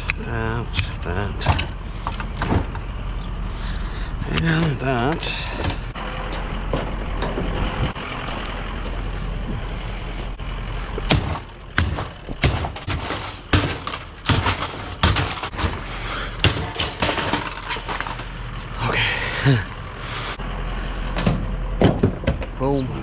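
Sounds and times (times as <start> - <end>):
vehicle engine running: 0.0 - 23.0
sharp irregular knocks and clunks: 0.7 - 2.9, 4.4 - 6.0, 11.0 - 18.3, 21.2 - 22.6.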